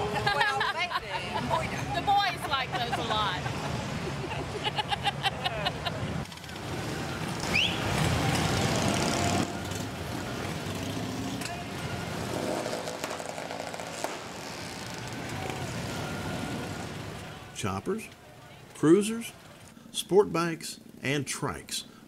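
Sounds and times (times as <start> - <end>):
woman laughing: 0.0 - 6.1
motorcycle engines rumbling: 0.0 - 22.0.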